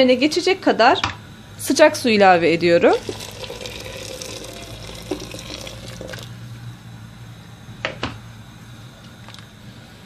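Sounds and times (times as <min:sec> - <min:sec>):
hot water pouring into metal pot: 0:03.0 - 0:06.3.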